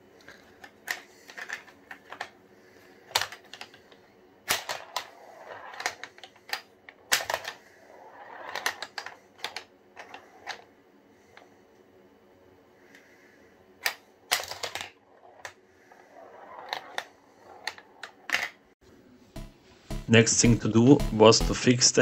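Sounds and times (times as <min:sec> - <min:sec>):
ball clacking against parts: 0:00.2 - 0:02.4, 0:03.0 - 0:10.7, 0:13.8 - 0:18.6
ball rolling across board: 0:04.6 - 0:10.7, 0:14.4 - 0:18.6
pinball flippers snapping: 0:05.7 - 0:07.6.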